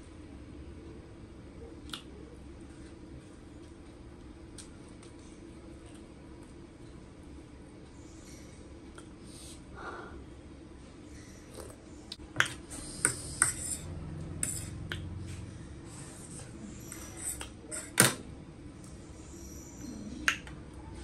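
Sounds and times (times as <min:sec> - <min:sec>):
soft chewing: 0:01.6 - 0:09.6.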